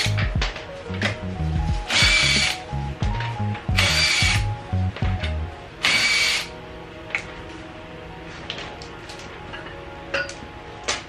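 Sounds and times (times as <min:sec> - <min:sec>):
background music with steady beat: 0:00.0 - 0:11.0
impact wrench bursts: 0:01.9 - 0:02.6, 0:03.8 - 0:04.4, 0:05.8 - 0:06.5.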